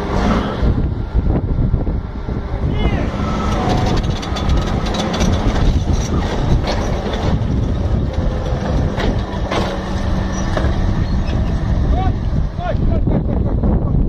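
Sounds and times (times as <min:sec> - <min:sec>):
bulldozer diesel engine running: 0:00.0 - 0:14.0
steel tracks clanking: 0:03.1 - 0:12.7
rocks rattling and crashing: 0:03.3 - 0:10.9.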